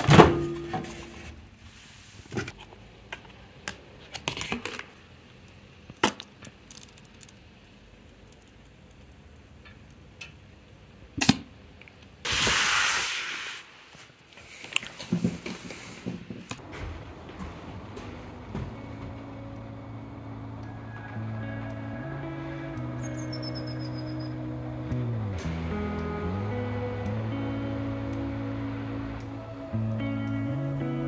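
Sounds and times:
objects clicking and knocking: 5.9 - 7.5
short hiss: 12.2 - 16.0.

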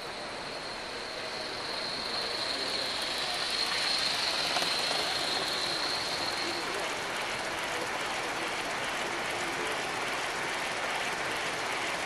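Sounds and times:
thin high whine: 0.0 - 7.6
model train rolling on track: 0.0 - 12.0.

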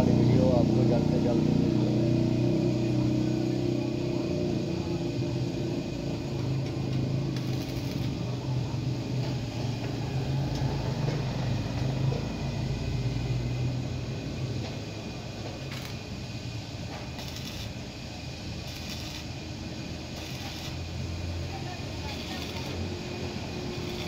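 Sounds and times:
constant low hum: 0.0 - 24.0
welding arc crackling hiss: 5.0 - 24.0.

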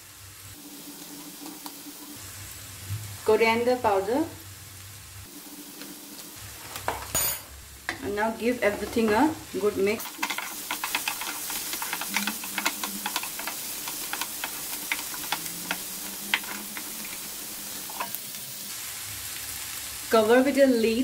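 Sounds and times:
vegetables sizzling in oil: 0.0 - 21.0
spatula scraping pan: 8.6 - 18.5.

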